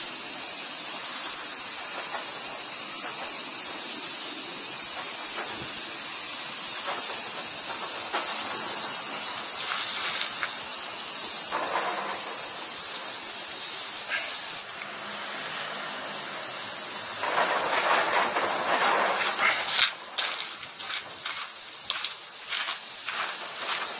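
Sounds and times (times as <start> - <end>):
high-pitched insect chorus: 0.0 - 23.9
footsteps on gravel: 8.2 - 10.6, 17.3 - 23.9.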